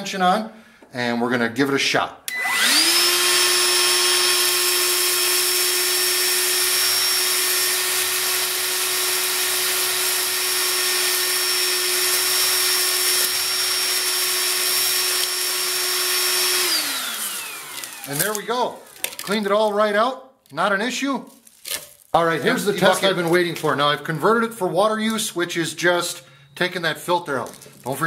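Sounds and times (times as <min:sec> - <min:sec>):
wet dry vacuum motor whine: 0:02.3 - 0:19.0
vacuum sucking sand: 0:02.4 - 0:19.0.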